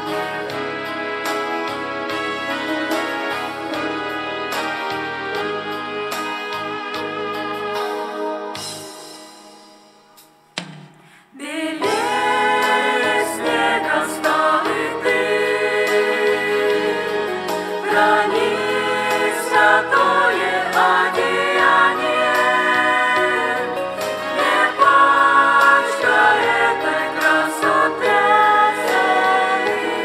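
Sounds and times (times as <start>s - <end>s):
instrumental music: 0.0s - 11.1s, 11.8s - 30.0s
choir singing a hymn: 11.4s - 30.0s.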